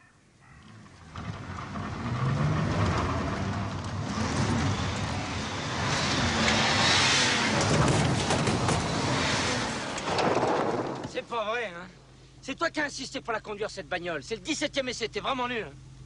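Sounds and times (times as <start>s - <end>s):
tyres on loose dirt: 0.5s - 11.7s
car engine revving: 0.6s - 11.0s.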